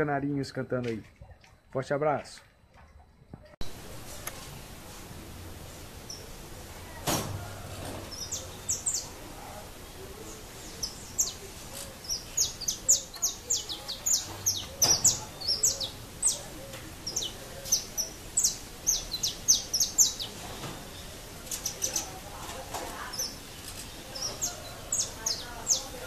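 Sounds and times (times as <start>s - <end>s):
finches chirping: 8.1s - 26.0s.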